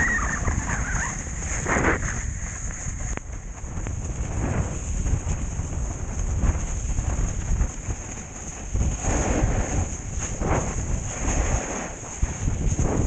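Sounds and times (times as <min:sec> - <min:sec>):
snow spraying hiss: 0:00.0 - 0:13.0
wind buffeting microphone: 0:00.0 - 0:13.0.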